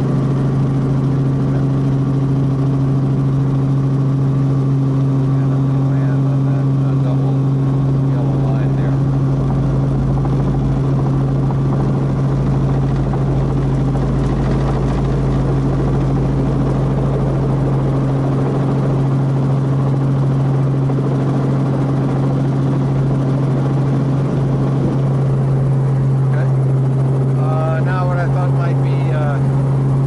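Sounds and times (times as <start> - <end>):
helicopter engine and rotor drone: 0.0 - 30.0.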